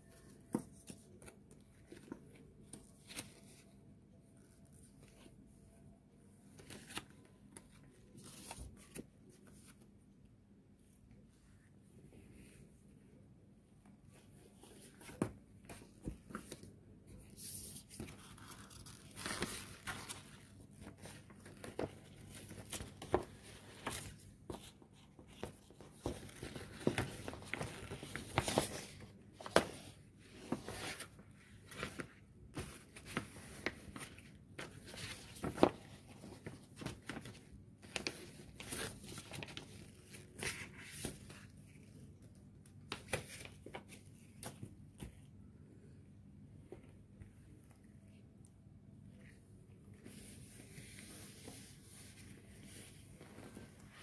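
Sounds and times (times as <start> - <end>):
paper and cardboard rustling: 17.3 - 41.9.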